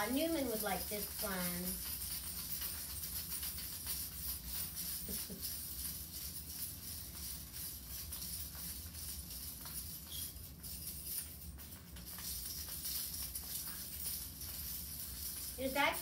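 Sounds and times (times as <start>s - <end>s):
metal toy jingling: 0.0s - 16.0s.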